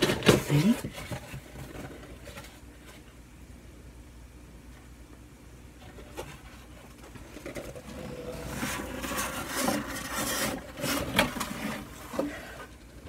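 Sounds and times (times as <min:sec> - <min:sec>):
carrier rustling and scraping: 0:00.0 - 0:03.2, 0:05.8 - 0:13.0.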